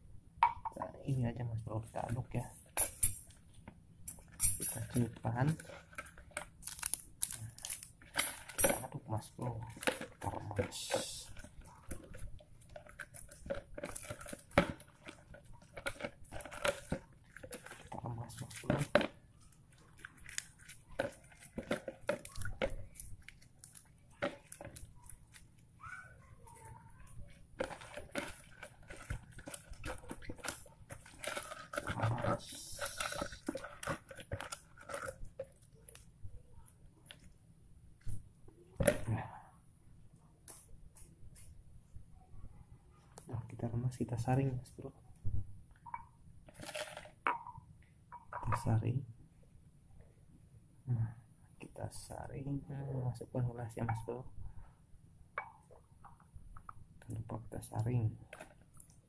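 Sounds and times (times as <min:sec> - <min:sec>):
leaves crushed by hand in water: 0:06.4 - 0:25.6.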